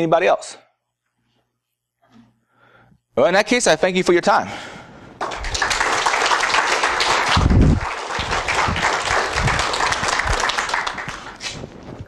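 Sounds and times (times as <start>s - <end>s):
audience applauding: 5.2s - 11.7s.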